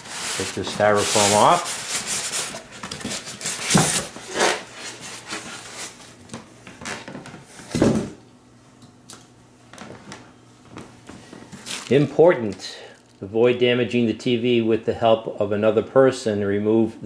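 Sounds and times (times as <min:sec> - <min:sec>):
styrofoam scraping cardboard: 0:00.0 - 0:06.0.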